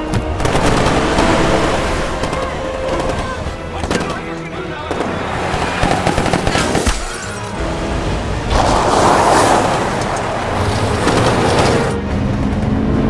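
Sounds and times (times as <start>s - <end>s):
gunfire bursts and shots: 0.0s - 7.4s, 10.5s - 12.0s
dramatic music score: 0.0s - 13.0s.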